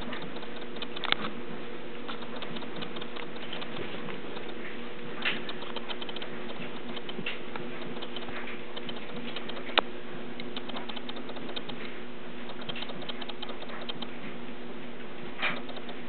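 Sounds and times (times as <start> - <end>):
pet claws clicking on hard surface: 0.0 - 1.3, 2.1 - 4.6, 5.2 - 9.8, 10.4 - 11.8, 12.5 - 14.1, 15.4 - 16.0.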